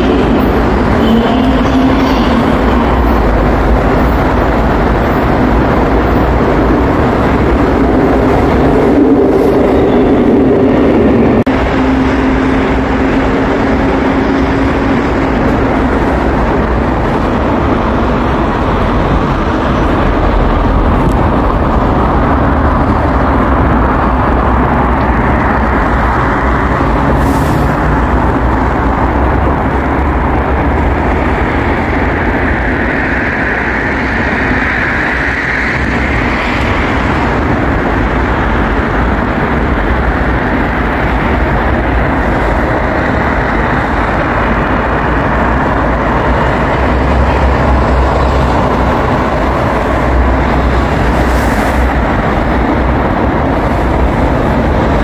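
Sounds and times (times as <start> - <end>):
rising whine: 0.0 - 27.2
subway train rumbling on track: 0.0 - 55.0.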